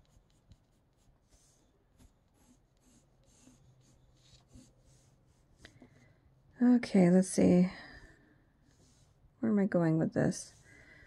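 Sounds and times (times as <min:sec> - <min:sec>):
pencil scratching on paper: 0:00.0 - 0:05.6, 0:08.6 - 0:09.2.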